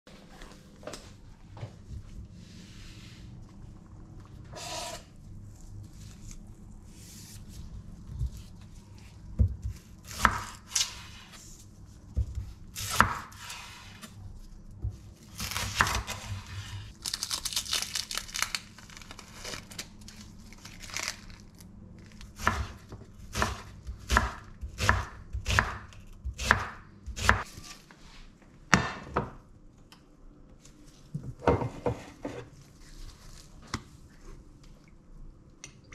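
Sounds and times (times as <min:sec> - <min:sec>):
dry crackling of onion skin: 0:15.2 - 0:16.2, 0:16.9 - 0:22.5
knife chopping on wooden board: 0:22.4 - 0:27.4.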